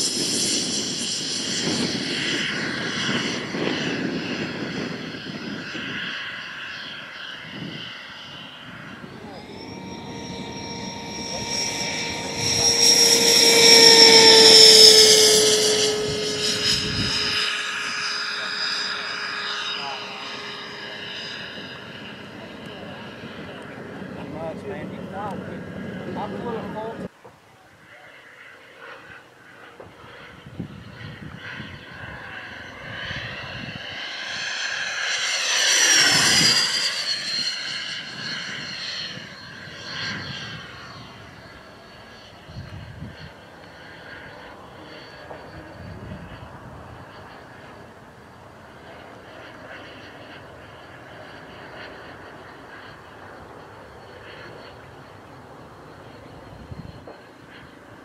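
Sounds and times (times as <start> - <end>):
model jet fan whining: 0.0 - 58.0.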